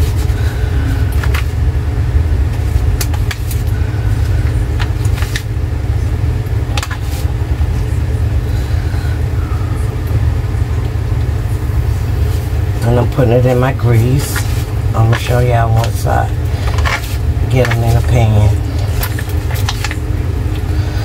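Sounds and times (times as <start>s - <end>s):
low rumble: 0.0s - 21.0s.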